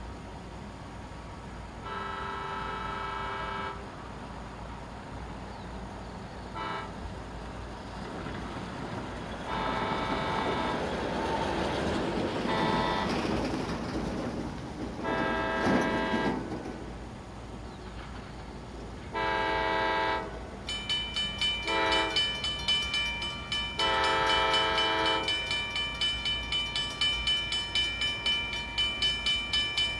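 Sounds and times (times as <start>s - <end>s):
low rumble of train: 0.0s - 29.9s
train air horn blasts: 1.8s - 4.0s, 6.5s - 7.1s, 9.5s - 11.4s, 12.5s - 13.2s, 15.0s - 16.5s, 19.1s - 20.4s, 21.6s - 22.3s, 23.8s - 25.4s.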